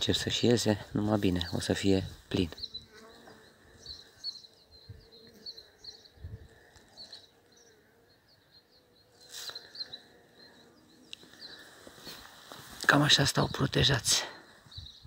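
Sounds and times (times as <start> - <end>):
honeybees humming: 0.0 - 15.0
small birds chirping: 0.0 - 15.0
handling rustle: 11.6 - 12.9.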